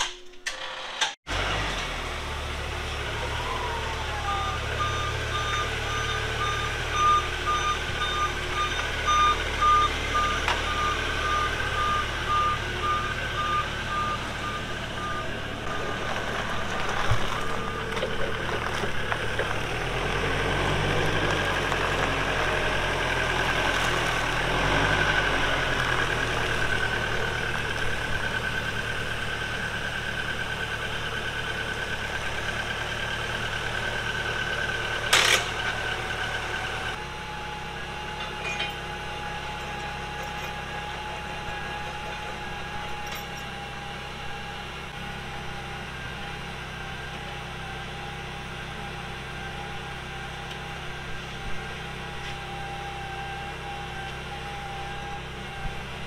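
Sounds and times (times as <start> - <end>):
forklift engine running: 0.0 - 56.0
backup alarm beeping: 4.2 - 16.0.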